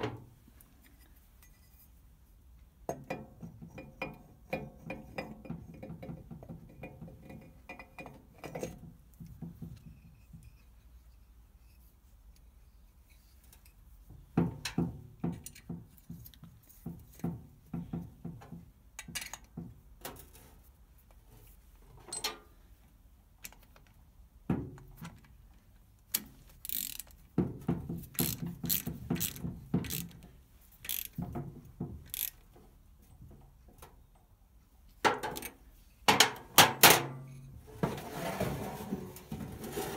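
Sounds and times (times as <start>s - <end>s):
hand ratchet clicking: 26.1s - 27.2s, 28.1s - 30.2s, 30.8s - 31.2s, 32.0s - 32.5s.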